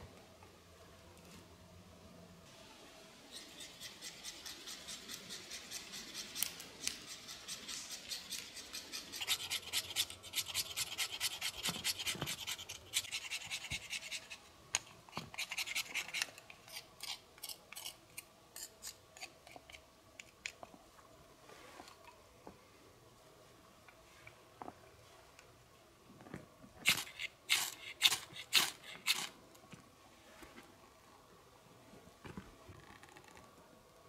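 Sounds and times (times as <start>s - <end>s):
knife scraping wooden stick: 3.3s - 14.5s, 15.3s - 18.0s, 18.6s - 19.8s, 26.9s - 29.4s.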